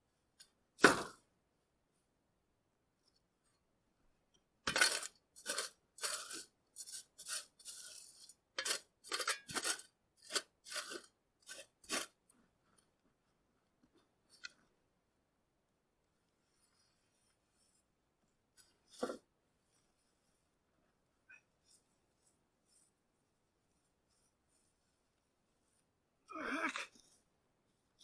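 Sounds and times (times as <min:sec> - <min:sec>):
shovel scraping into clay: 0:04.7 - 0:12.2.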